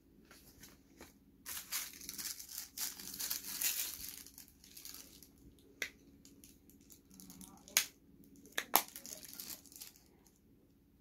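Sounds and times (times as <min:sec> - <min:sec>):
packaging crinkling and tearing: 0:01.5 - 0:05.6, 0:06.2 - 0:10.2.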